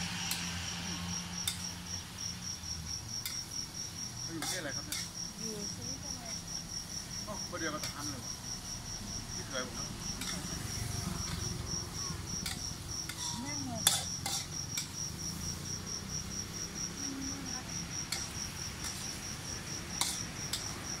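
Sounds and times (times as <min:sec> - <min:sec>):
cricket chirping: 0:00.0 - 0:21.0
metal spatula scraping a wok: 0:04.4 - 0:05.2, 0:10.2 - 0:11.6, 0:12.4 - 0:14.9, 0:18.1 - 0:19.2, 0:20.0 - 0:20.7.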